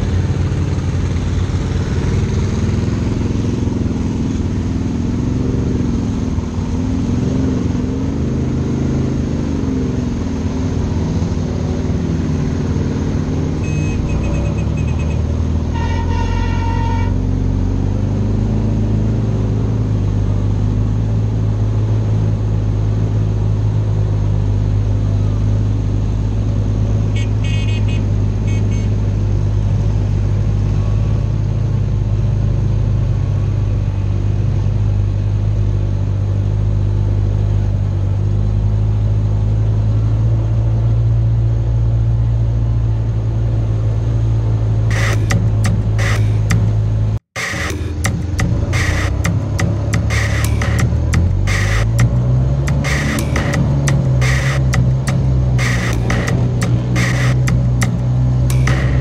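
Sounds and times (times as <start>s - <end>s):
vehicle engines revving: 0.0s - 59.0s
vehicle horn: 13.6s - 17.2s, 27.1s - 29.0s, 44.9s - 46.7s
high horn toots: 13.6s - 17.4s, 27.2s - 29.0s, 44.9s - 46.8s, 47.4s - 59.0s.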